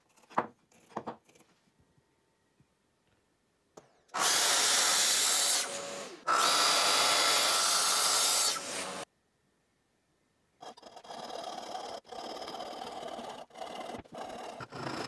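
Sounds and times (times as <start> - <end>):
track saw cutting a board: 4.2 - 9.0.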